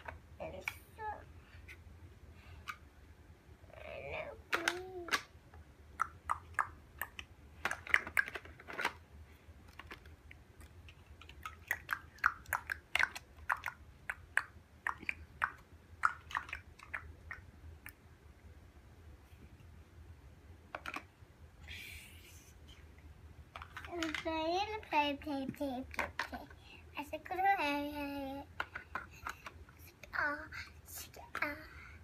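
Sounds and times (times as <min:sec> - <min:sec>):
plastic building blocks clicking: 0:06.5 - 0:09.0, 0:09.7 - 0:13.8, 0:20.7 - 0:21.1, 0:23.6 - 0:24.3, 0:28.6 - 0:29.6.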